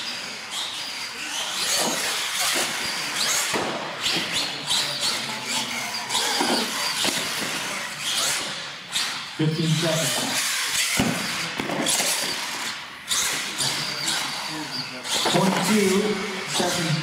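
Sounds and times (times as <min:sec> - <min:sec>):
toy truck motor whine: 0:00.0 - 0:17.0.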